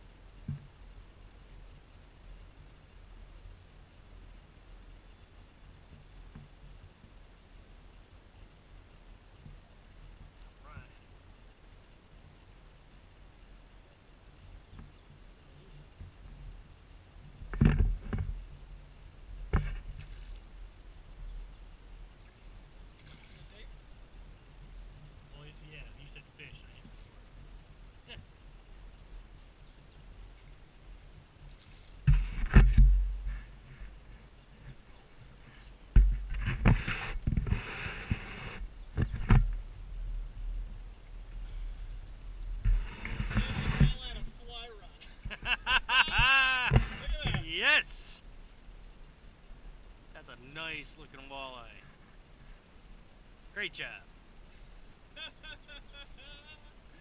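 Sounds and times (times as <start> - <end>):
water splashing: 22.1 - 23.8.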